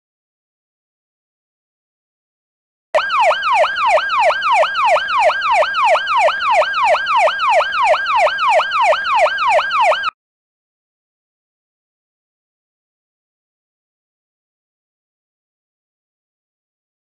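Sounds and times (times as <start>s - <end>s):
police siren yelping wail: 3.0s - 10.2s.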